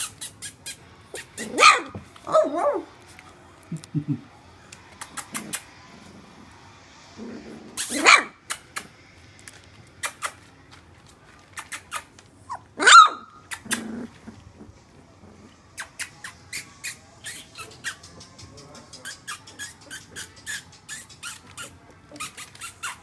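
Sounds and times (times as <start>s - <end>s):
puppy barks: 1.2s - 2.9s, 7.8s - 8.7s, 12.5s - 13.9s.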